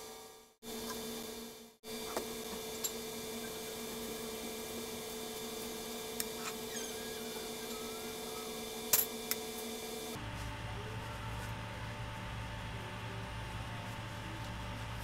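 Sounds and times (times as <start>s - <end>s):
electrical hum: 0.0s - 15.0s
faint handling clicks and squeaks: 6.2s - 8.6s.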